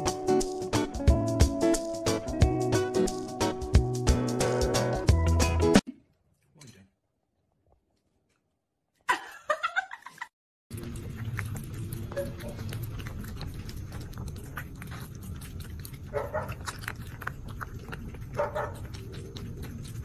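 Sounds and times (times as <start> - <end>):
cat chewing clicks: 10.8 - 20.0.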